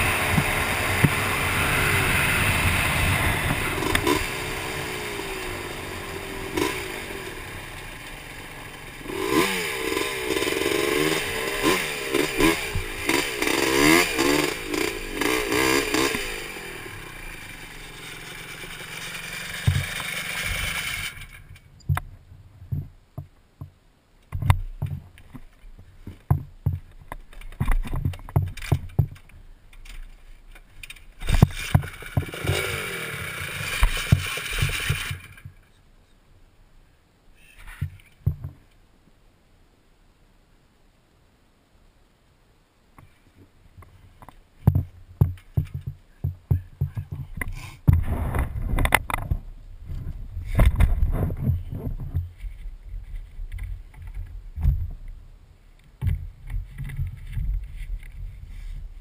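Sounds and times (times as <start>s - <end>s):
atv engine revving: 0.0s - 21.6s, 30.9s - 35.5s
knocks and clicks: 44.2s - 49.4s.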